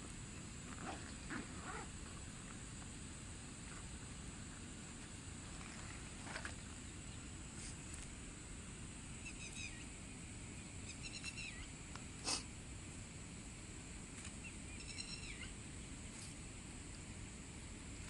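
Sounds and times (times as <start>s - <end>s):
steady background hiss: 0.0s - 18.0s
high chirping animal calls: 10.9s - 11.7s, 14.8s - 15.5s.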